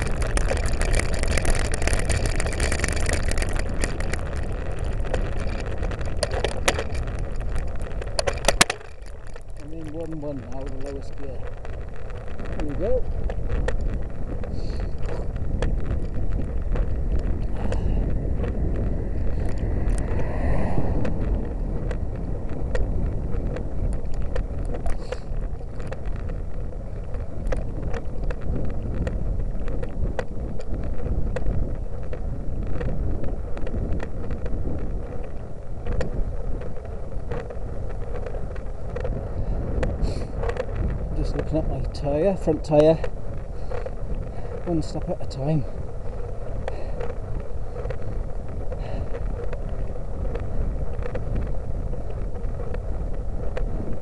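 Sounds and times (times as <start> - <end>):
bicycle clicks and rattles: 0.0 - 54.0
wind rumbling on microphone: 0.0 - 54.0.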